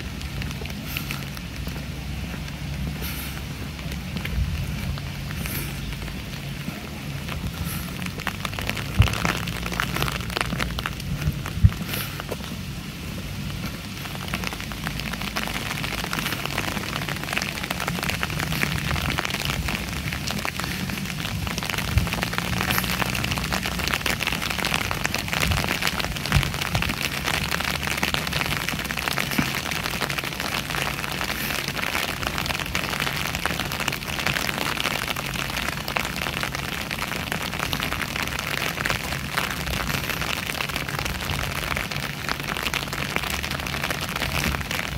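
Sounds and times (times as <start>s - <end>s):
rain falling: 0.0s - 44.9s.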